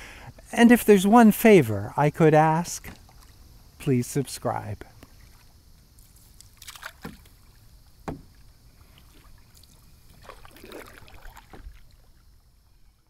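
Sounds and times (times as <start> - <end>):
paddle splashing in water: 5.0 - 13.0
sharp knock: 8.0 - 8.3.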